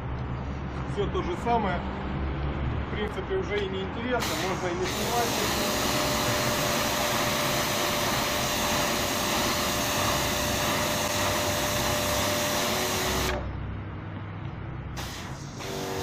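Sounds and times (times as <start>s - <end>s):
pressure washer spray hissing: 4.2s - 13.4s, 15.0s - 16.0s.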